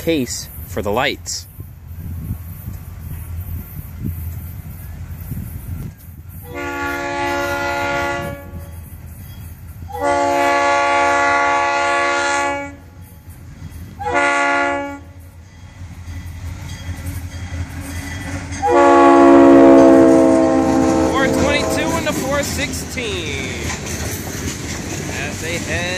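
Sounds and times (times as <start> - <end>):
train rumbling: 0.0 - 25.9
locomotive air horn blasts: 6.4 - 8.7, 9.9 - 12.8, 14.0 - 15.2, 18.6 - 22.6.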